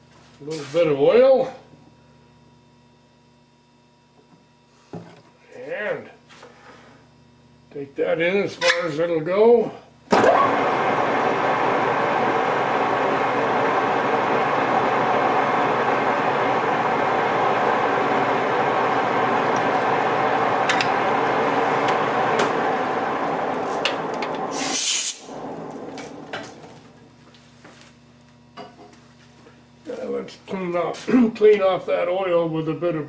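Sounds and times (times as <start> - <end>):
metal lathe running: 10.2 - 27.0.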